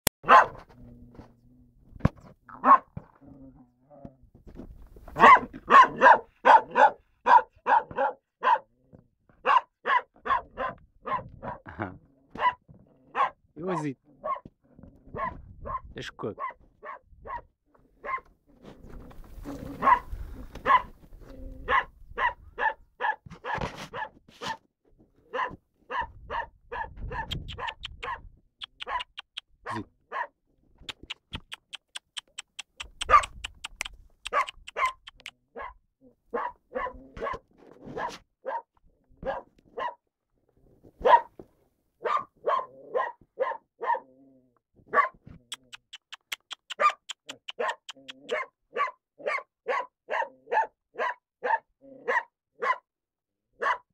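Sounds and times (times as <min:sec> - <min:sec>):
dog barking: 0:00.2 - 0:00.7, 0:02.5 - 0:03.0, 0:05.2 - 0:08.8, 0:09.4 - 0:14.5, 0:15.1 - 0:18.3, 0:19.7 - 0:20.9, 0:21.6 - 0:24.6, 0:25.2 - 0:30.4, 0:32.8 - 0:33.5, 0:34.2 - 0:40.0, 0:41.0 - 0:41.4, 0:42.0 - 0:44.1, 0:44.9 - 0:45.3, 0:46.7 - 0:52.9, 0:53.6 - 0:53.9.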